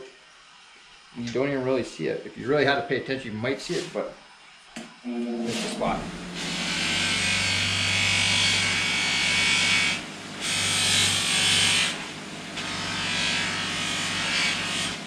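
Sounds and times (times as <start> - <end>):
bench buffer motor hum: 5.1 - 15.0.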